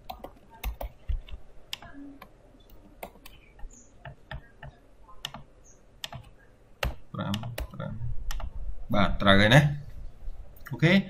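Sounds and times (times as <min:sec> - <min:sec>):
computer keyboard typing: 0:00.0 - 0:08.6.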